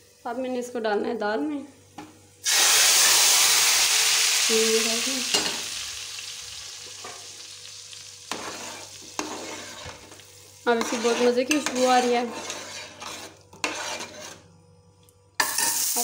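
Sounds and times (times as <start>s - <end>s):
hot oil sizzling: 2.4s - 14.1s, 15.4s - 16.0s.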